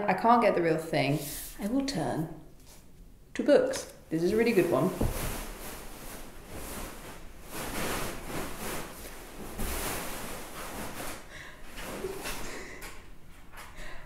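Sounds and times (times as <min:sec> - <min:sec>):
beanbag filling rustling: 0:04.6 - 0:11.3.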